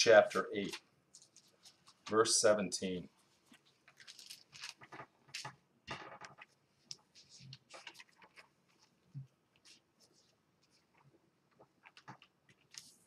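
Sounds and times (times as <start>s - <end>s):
paper pages rustling: 0.6s - 2.3s, 3.2s - 13.0s.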